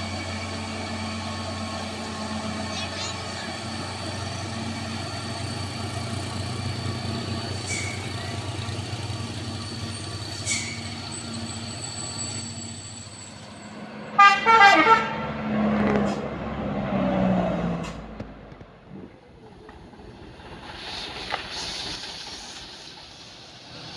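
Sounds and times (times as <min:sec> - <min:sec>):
truck horn: 0:14.1 - 0:15.5.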